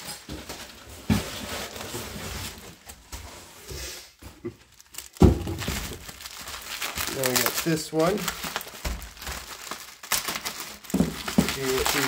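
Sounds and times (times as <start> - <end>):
bubble wrap and cardboard rustling: 0.0 - 12.0
thump: 5.2 - 6.0.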